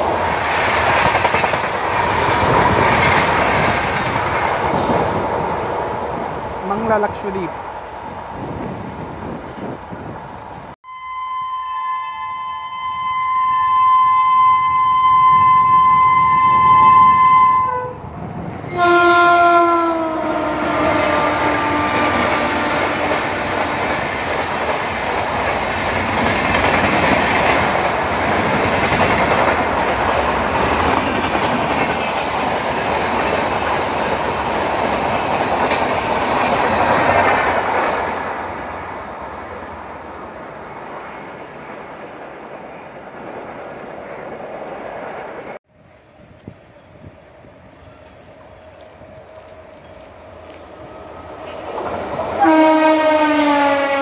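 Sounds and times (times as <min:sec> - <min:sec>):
train coaches rushing past: 0:00.0 - 0:10.8, 0:14.4 - 0:54.0
locomotive horn blasts: 0:10.8 - 0:18.0, 0:18.7 - 0:23.9, 0:52.4 - 0:54.0.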